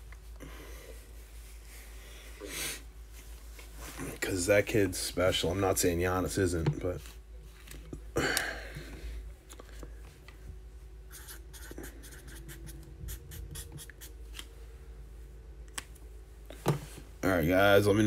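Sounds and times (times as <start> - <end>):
faint steady hum: 0.0 - 18.0
small clicks and handling noises: 9.4 - 10.5, 15.6 - 16.8.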